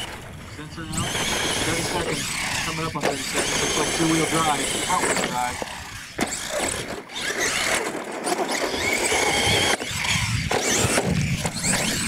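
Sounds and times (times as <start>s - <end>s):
toy truck motor whining: 0.0s - 12.0s
tyres rushing on dirt: 0.0s - 12.0s.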